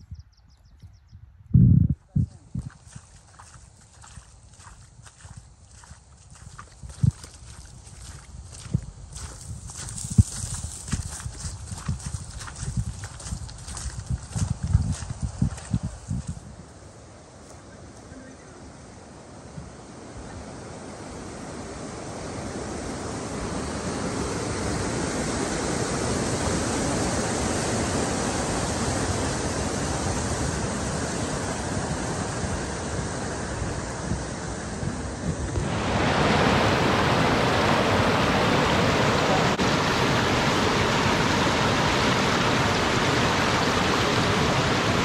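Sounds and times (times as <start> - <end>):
rushing mountain creek: 2.8 - 22.7, 35.4 - 45.0.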